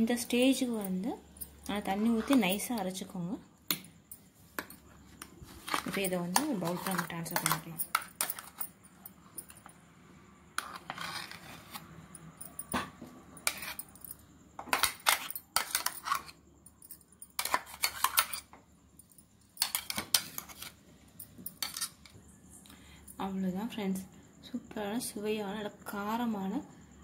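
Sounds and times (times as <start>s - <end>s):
steel spoon scraping metal jar: 0.2s - 2.8s, 5.5s - 8.7s, 10.6s - 12.8s, 13.4s - 16.4s, 17.4s - 18.5s, 19.6s - 20.8s, 21.5s - 22.1s.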